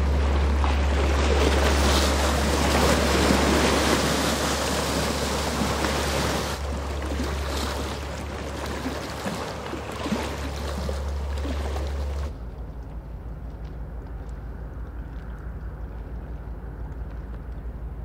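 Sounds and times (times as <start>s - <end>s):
bow wave rushing: 0.0s - 12.7s
boat engine droning: 0.0s - 18.0s.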